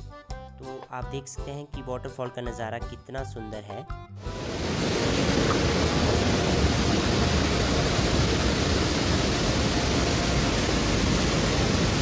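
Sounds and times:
waterfall roaring: 4.3s - 12.0s.

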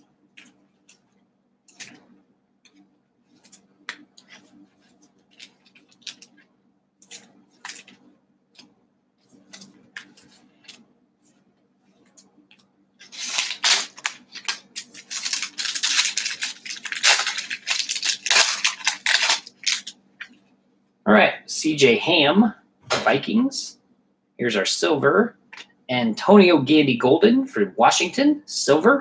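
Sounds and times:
foil wrapper crinkling and tearing: 5.3s - 6.3s, 13.0s - 20.0s.

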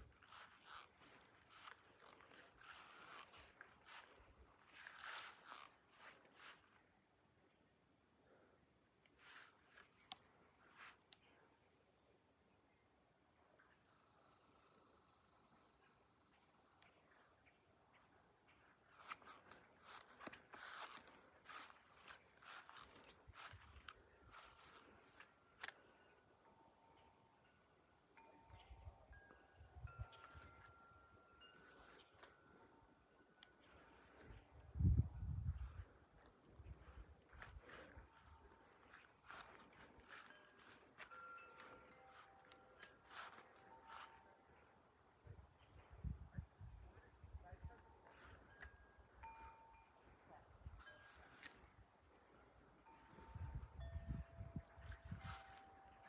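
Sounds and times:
faint footsteps on path: 0.0s - 6.7s, 18.8s - 26.0s, 35.4s - 44.2s
insects trilling: 0.0s - 10.9s, 12.6s - 47.4s.

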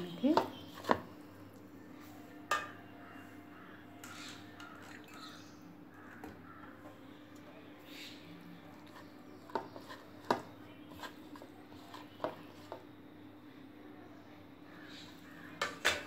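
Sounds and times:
hand mixing paste in bowl: 8.7s - 12.8s.

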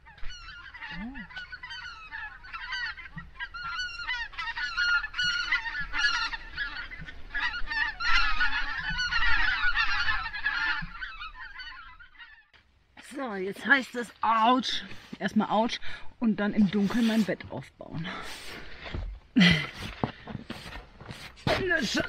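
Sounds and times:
geese honking: 0.0s - 12.6s.

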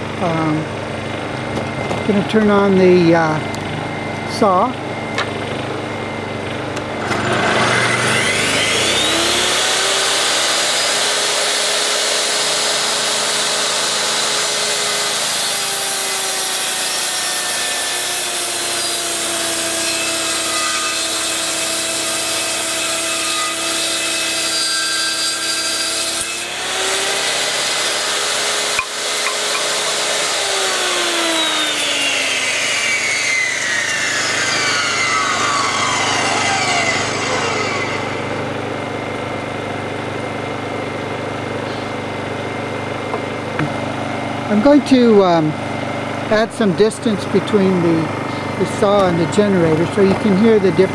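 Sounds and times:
generator engine running: 0.0s - 15.9s, 26.4s - 50.9s
table saw motor whining: 0.0s - 50.9s
saw blade ripping board: 7.0s - 38.3s.

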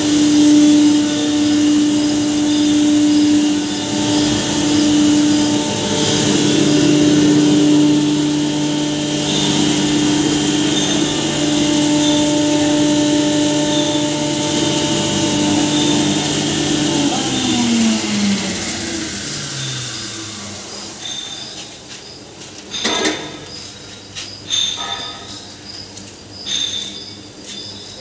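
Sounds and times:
rushing whirring noise: 0.0s - 21.5s
hammer mill motor hum: 0.0s - 25.0s.

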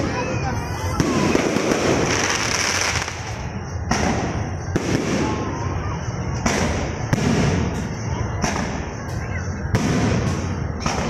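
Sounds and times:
fireworks crackling: 0.0s - 11.0s
fireworks bangs: 0.8s - 5.7s, 6.4s - 8.9s.

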